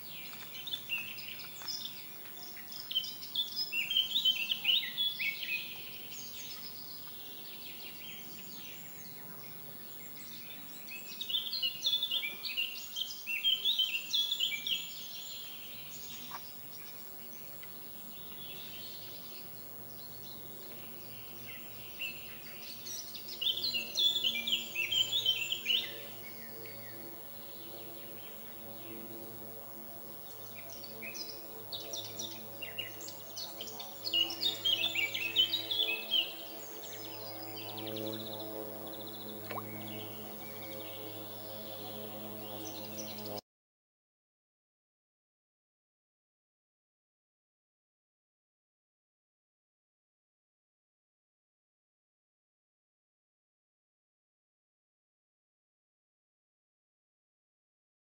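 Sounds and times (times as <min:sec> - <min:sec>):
songbird chirping: 0:00.0 - 0:29.5, 0:30.2 - 0:43.4.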